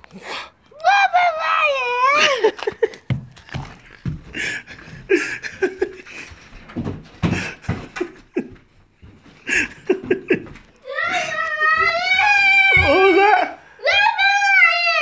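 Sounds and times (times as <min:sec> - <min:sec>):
child squealing and panting: 0:10.8 - 0:13.3.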